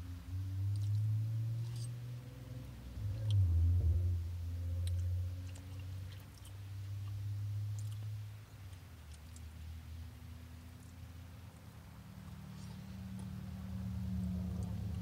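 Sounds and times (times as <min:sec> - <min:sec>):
steady low hum: 0:00.0 - 0:15.0
wet mouth clicks: 0:04.8 - 0:09.5
person chewing food: 0:04.8 - 0:09.6.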